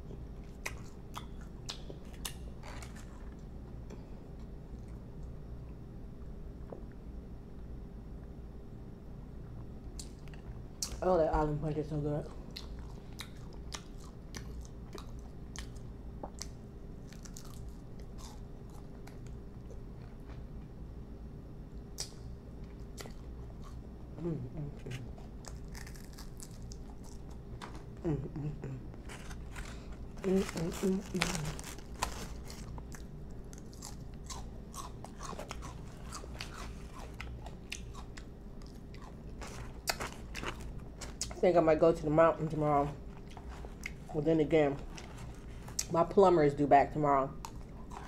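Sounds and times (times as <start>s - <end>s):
faint low hum: 0.0s - 48.0s
chewing crunchy chicken wing: 12.2s - 20.7s, 22.0s - 23.9s, 24.8s - 41.4s, 43.0s - 44.2s, 47.3s - 48.0s.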